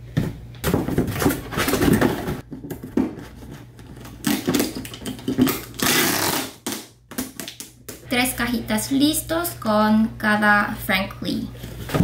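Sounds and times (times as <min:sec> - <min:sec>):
cardboard boxes rustling and scraping: 0:00.7 - 0:04.2.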